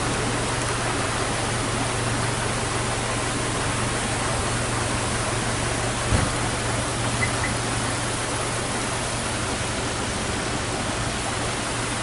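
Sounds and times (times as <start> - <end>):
waterfall rushing over rock: 0.0 - 12.0.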